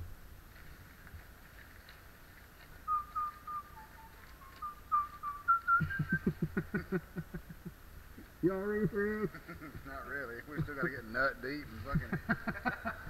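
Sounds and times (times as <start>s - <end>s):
person whistling a tune: 2.9s - 6.3s.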